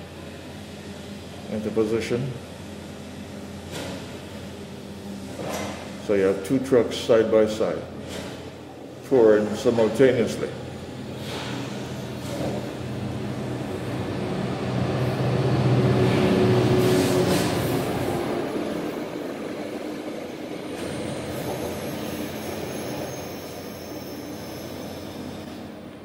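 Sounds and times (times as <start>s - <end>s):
train cars rolling on rails: 7.7s - 26.0s
locomotive engine hum: 10.5s - 23.1s
high wheel squeal: 20.9s - 25.8s.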